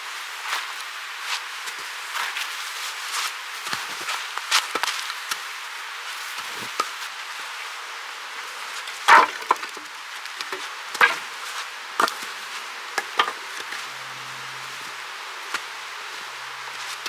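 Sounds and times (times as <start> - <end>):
steady hiss: 0.0 - 17.0
axe splitting logs: 9.1 - 11.2, 13.0 - 13.4.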